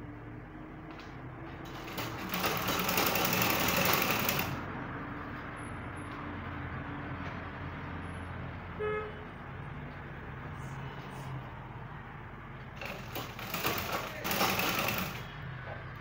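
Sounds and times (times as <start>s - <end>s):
treadle sewing machine stitching: 1.6s - 4.6s, 12.8s - 15.3s.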